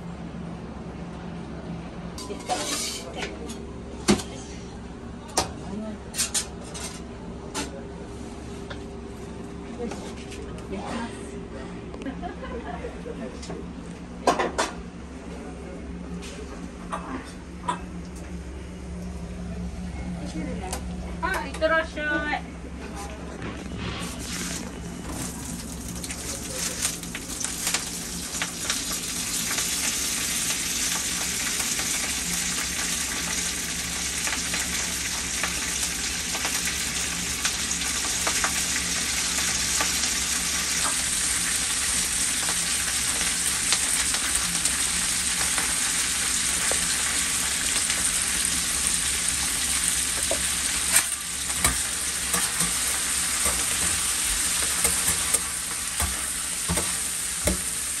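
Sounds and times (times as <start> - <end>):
food sizzling on griddle: 24.0 - 58.0.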